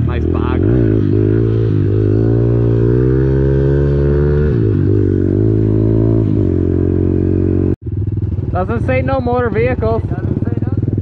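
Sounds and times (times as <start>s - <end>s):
small motorcycle engine revving: 0.0s - 8.2s.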